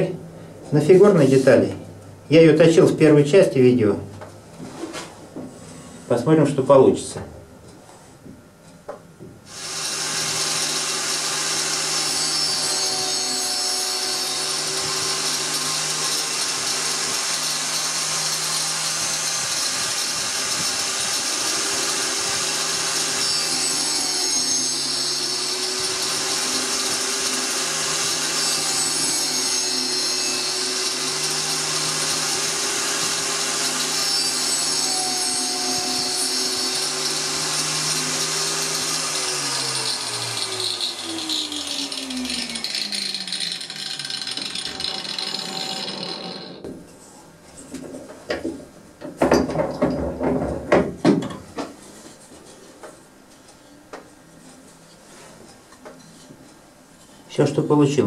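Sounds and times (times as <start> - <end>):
angle grinder cutting wood: 9.5 - 46.8.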